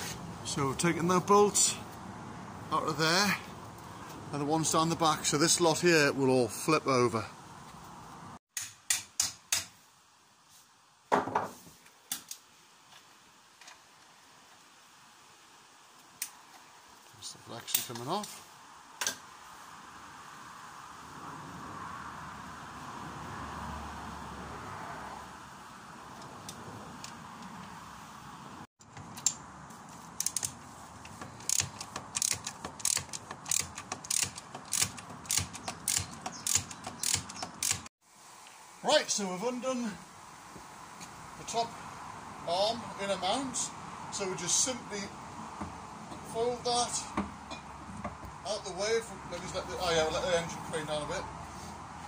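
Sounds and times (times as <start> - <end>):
ratchet wrench clicking: 30.2 - 37.9.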